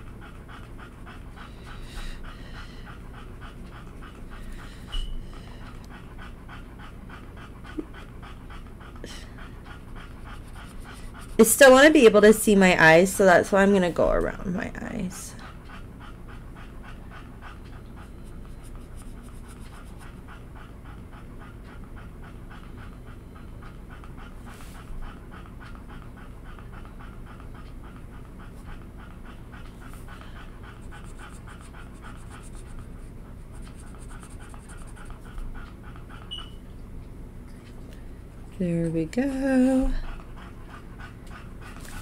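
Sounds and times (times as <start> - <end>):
dog panting: 0.0 - 42.0.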